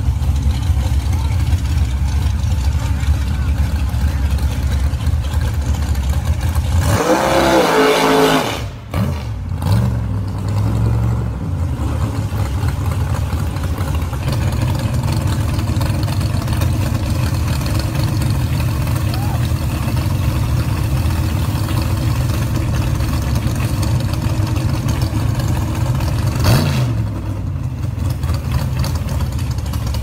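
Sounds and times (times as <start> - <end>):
engines rumbling at idle: 0.0 - 30.0
engine revving: 2.2 - 18.6, 24.8 - 27.4.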